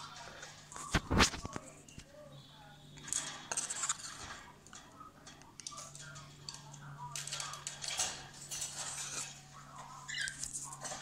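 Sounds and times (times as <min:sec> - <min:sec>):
wire birdcage clinking and rattling: 0:03.0 - 0:09.4.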